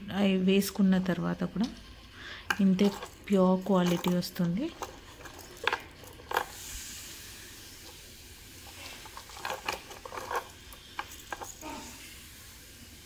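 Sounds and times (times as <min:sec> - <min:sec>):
necklace clicking and rustling: 0:02.5 - 0:06.6, 0:08.6 - 0:11.8
faint hiss: 0:06.3 - 0:13.0.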